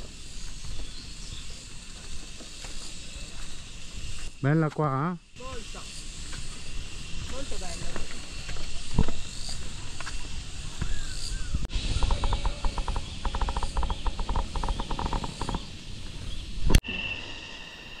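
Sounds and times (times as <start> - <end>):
animal rattling call: 5.4 - 16.0
faint steady high tone: 16.8 - 18.0.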